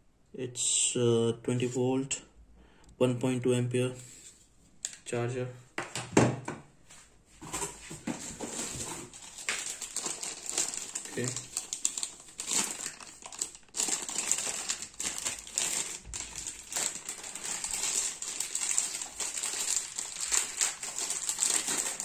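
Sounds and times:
plastic bag crinkling: 8.2 - 22.0
plastic bag tearing: 8.4 - 22.0.

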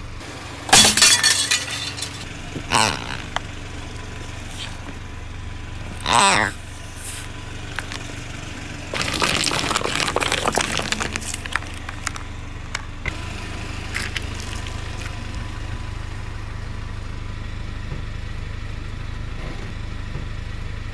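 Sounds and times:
car engine idling: 0.0 - 20.9
crackling and crunching under tyre: 0.6 - 20.5
tyre rolling over concrete: 8.9 - 12.3.

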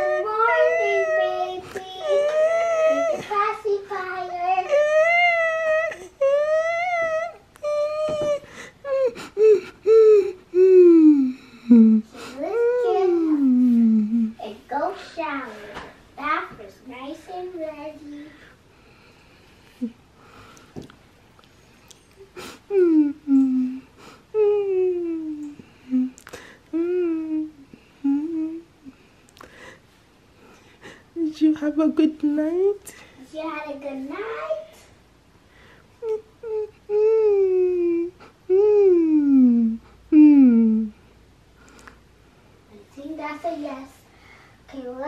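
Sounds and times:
child imitating crying baby: 0.0 - 3.4, 4.6 - 14.4
girl humming: 0.0 - 3.4, 4.6 - 14.4, 22.1 - 29.0, 36.0 - 41.0.

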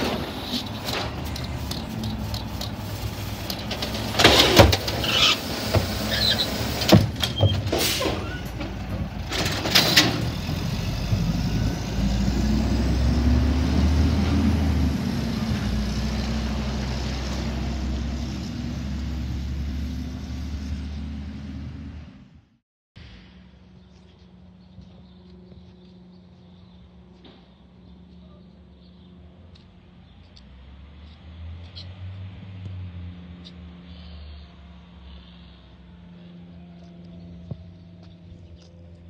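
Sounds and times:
truck engine revving: 0.0 - 22.4
garbage truck arm clanking: 3.4 - 10.6.

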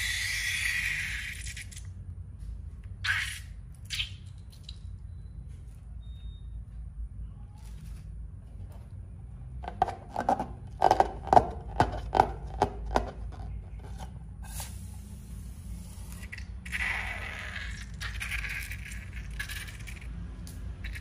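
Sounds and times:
slime squelching: 0.0 - 2.1, 15.6 - 21.0
rubber balloon squeaking: 16.2 - 19.8.

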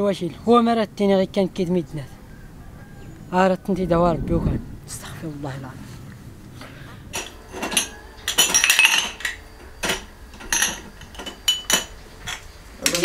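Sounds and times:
dishes and cutlery clinking: 7.1 - 13.0.

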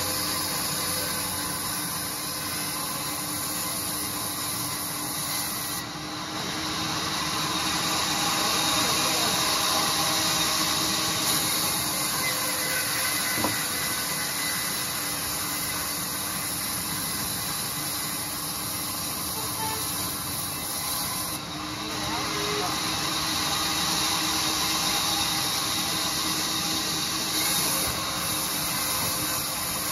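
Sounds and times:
band saw cutting wood: 0.0 - 29.9.

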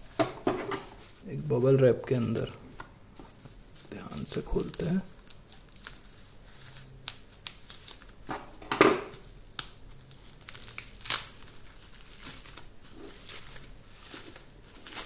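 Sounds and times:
bubble wrap crinkling: 0.8 - 15.0.

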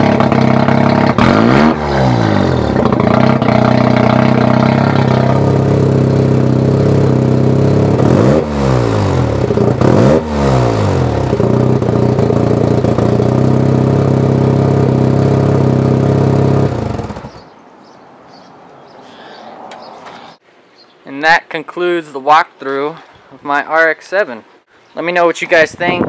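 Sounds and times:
engine idling: 0.0 - 17.4
engine throttle blips: 0.0 - 17.5.

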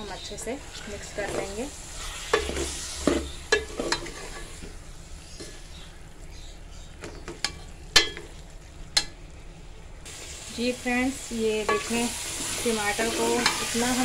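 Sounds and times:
faint frying sizzle: 0.0 - 14.0
metal spoon clinking against pot: 7.4 - 8.3.

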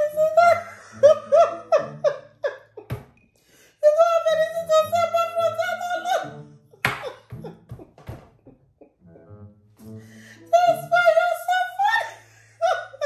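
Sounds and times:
woman laughing: 0.0 - 3.0, 6.9 - 9.0, 11.7 - 13.0.

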